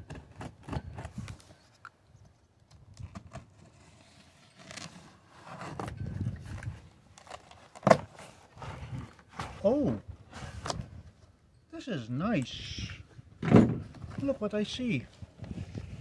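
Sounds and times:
cardboard flaps handled: 5.6 - 8.4.

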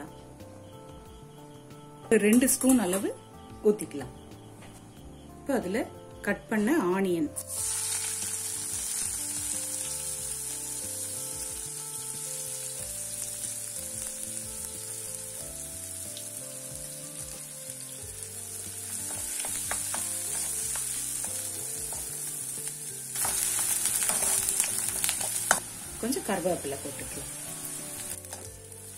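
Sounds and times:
onions sizzling in oil: 7.4 - 28.9.

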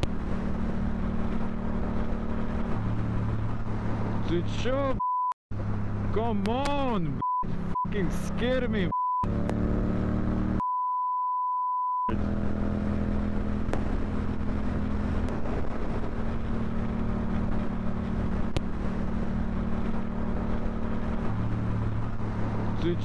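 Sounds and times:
vehicle engine running: 0.0 - 10.6, 12.1 - 23.0
censor bleep: 8.9 - 9.3, 10.6 - 12.1.

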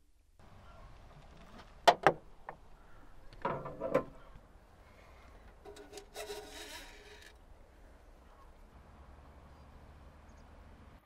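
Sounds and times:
bonnet clunking open: 3.4 - 4.3, 5.5 - 7.4.

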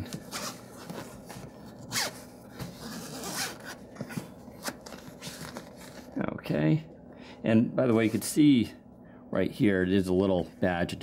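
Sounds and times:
zipper rasping open: 1.9 - 2.2, 2.8 - 3.8.

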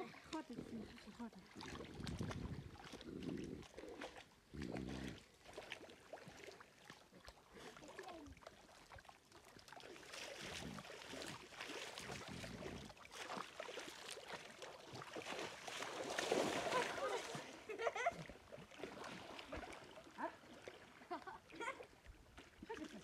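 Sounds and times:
water sloshing and splashing: 0.0 - 23.0
water poured from bucket: 9.8 - 17.5.

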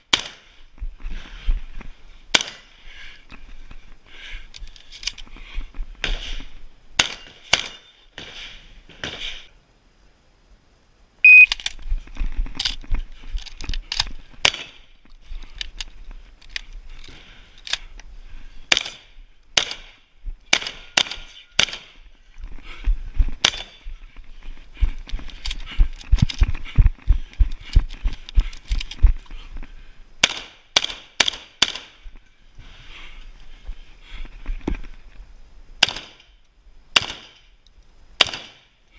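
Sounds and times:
shotgun shots: 0.1 - 0.5, 7.0 - 9.4, 18.7 - 22.0, 30.2 - 32.0, 35.8 - 36.3, 37.0 - 37.4, 38.2 - 38.7
shells loading into shotgun: 4.5 - 5.3
shot timer beep: 11.2 - 11.5.

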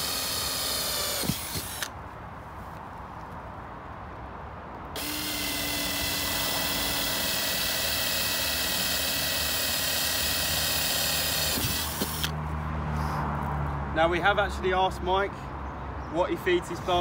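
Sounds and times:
cordless drill boring through plastic: 0.0 - 1.9, 5.0 - 12.3.

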